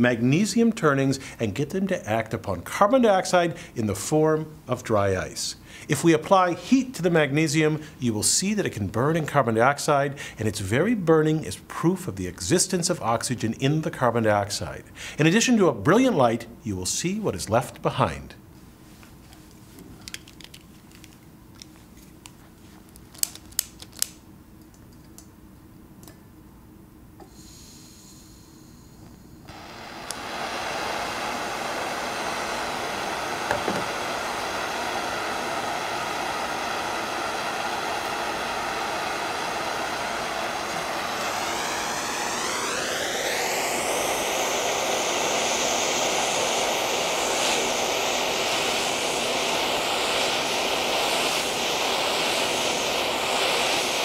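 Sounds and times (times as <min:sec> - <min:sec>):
propane torch flame rushing: 0:29.5 - 0:54.0.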